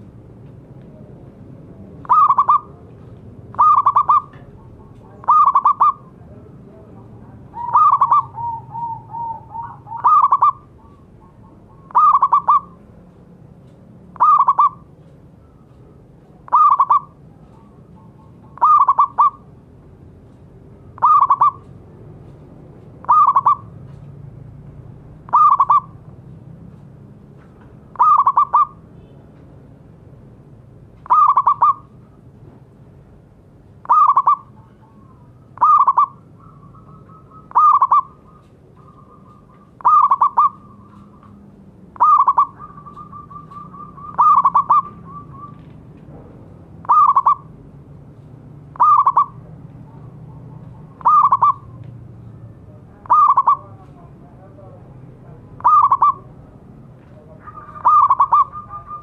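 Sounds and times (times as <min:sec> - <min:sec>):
dove cooing: 0:02.0 - 0:02.8, 0:03.5 - 0:06.2, 0:07.4 - 0:12.8, 0:14.2 - 0:15.6, 0:16.5 - 0:19.5, 0:20.9 - 0:21.7, 0:23.0 - 0:23.8, 0:25.3 - 0:26.0, 0:27.9 - 0:28.8, 0:31.0 - 0:31.9, 0:33.8 - 0:41.3, 0:42.0 - 0:45.6, 0:46.8 - 0:47.5, 0:48.8 - 0:51.8, 0:53.0 - 0:53.8, 0:55.6 - 0:56.4, 0:57.4 - 0:59.0.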